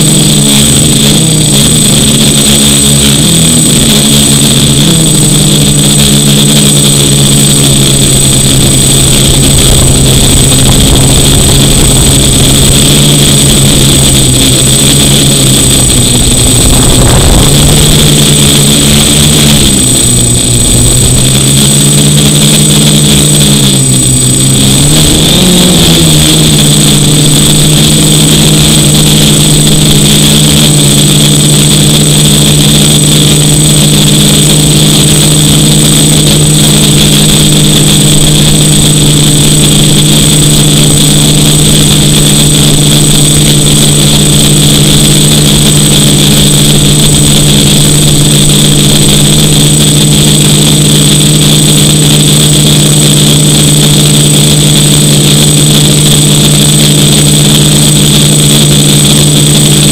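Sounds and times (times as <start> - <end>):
drone motors buzzing: 0.0 - 59.9
steady high whine: 0.0 - 59.9.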